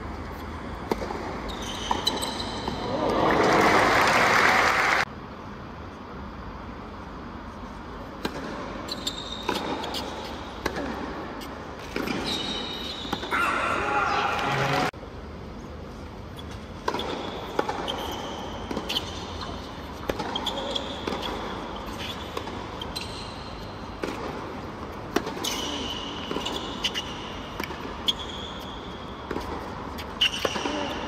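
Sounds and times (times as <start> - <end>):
shoes squeaking on court: 0.2 - 2.9, 8.5 - 13.7, 16.2 - 31.0
racket hitting tennis ball: 0.8 - 2.8, 8.2 - 8.8, 9.4 - 12.3, 16.8 - 22.8, 23.8 - 28.0, 29.2 - 31.0.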